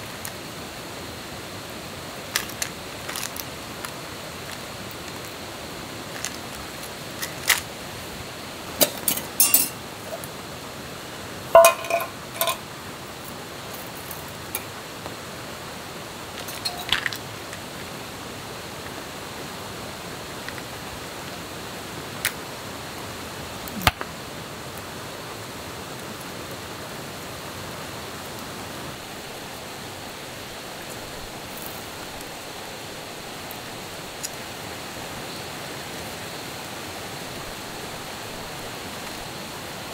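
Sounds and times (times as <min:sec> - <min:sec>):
stream water flowing: 0:00.0 - 0:39.9
camp gear clinking: 0:02.4 - 0:05.3, 0:08.7 - 0:10.3, 0:11.5 - 0:12.6, 0:16.3 - 0:17.6.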